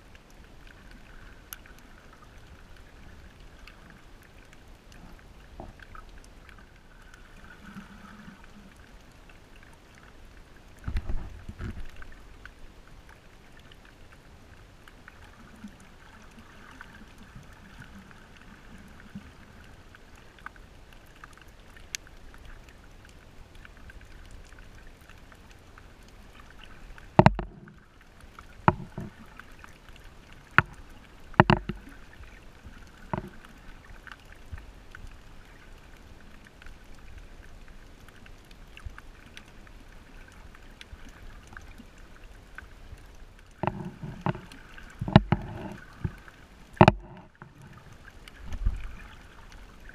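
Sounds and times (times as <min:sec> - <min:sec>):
muffled underwater hiss: 0:00.0 - 0:49.9
sharp knocks: 0:27.2 - 0:27.6, 0:46.8 - 0:47.2
low underwater thump: 0:27.2 - 0:27.8, 0:28.7 - 0:29.2, 0:31.4 - 0:31.8, 0:43.6 - 0:46.2, 0:46.8 - 0:47.5.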